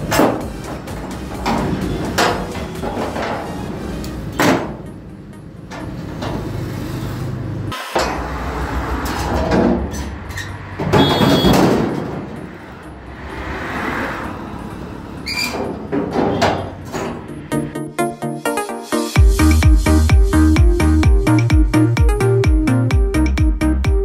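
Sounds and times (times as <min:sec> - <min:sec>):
metal buckles clanking: 0:00.0 - 0:06.6, 0:15.3 - 0:17.4.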